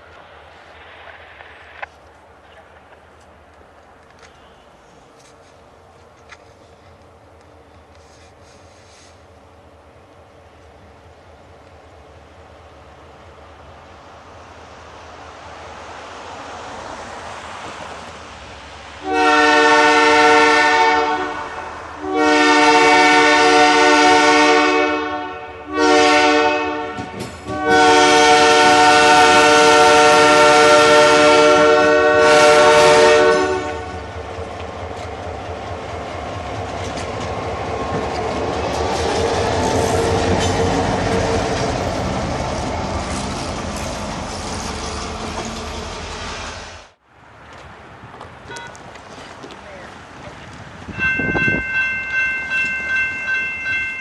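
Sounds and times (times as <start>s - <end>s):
locomotive rumbling past: 0.0s - 54.0s
locomotive air horn: 19.0s - 34.0s.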